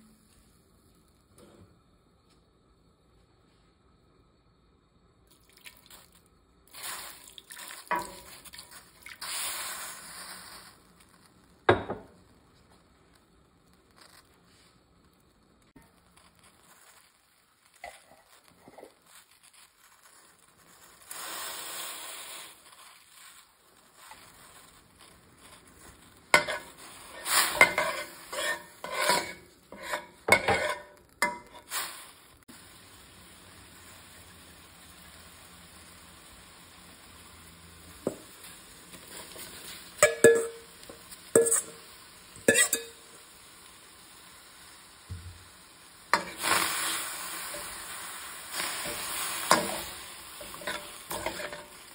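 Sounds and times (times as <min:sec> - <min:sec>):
garlic sizzling in a pan: 0:00.0 - 0:02.3, 0:03.8 - 0:51.9
short hiss: 0:06.7 - 0:11.4, 0:19.0 - 0:28.9, 0:31.2 - 0:33.9, 0:45.0 - 0:51.9
spatula scraping and clinking: 0:26.3 - 0:31.8, 0:39.1 - 0:41.8, 0:42.4 - 0:43.0, 0:46.2 - 0:46.5, 0:48.8 - 0:51.8.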